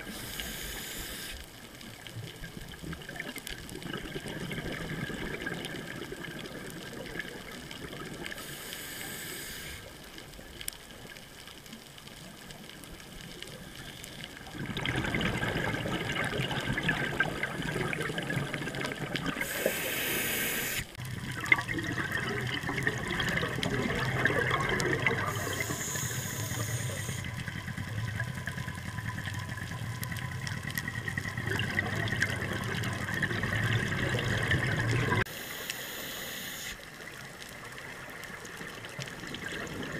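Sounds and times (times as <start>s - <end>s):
scuba bubbles: 0.0s - 39.9s
underwater water rush: 0.0s - 39.9s
short hisses: 19.4s - 21.0s.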